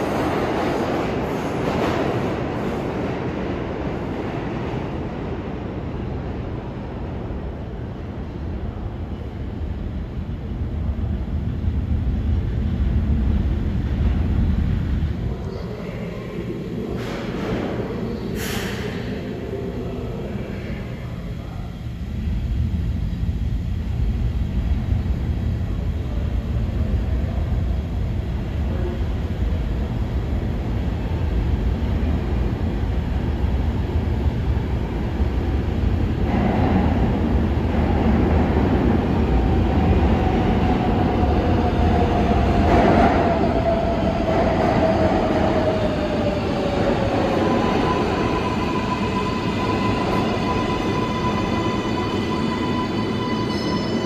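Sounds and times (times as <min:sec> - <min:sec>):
subway train rumbling: 0:00.0 - 0:54.0
high squeal: 0:48.0 - 0:54.0.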